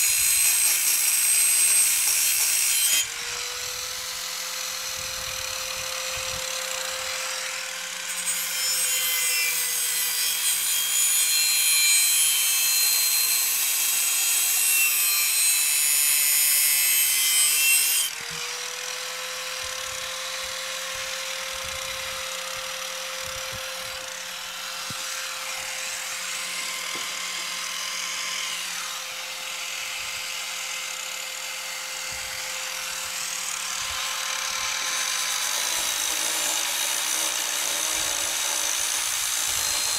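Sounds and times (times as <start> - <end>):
angle grinder grinding metal blade: 0.0 - 39.9.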